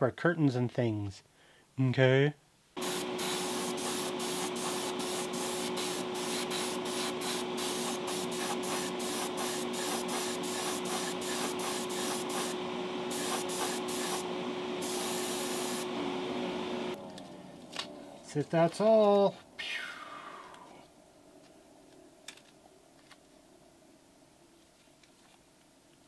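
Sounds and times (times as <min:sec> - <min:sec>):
extraction fan running: 0:02.8 - 0:19.0.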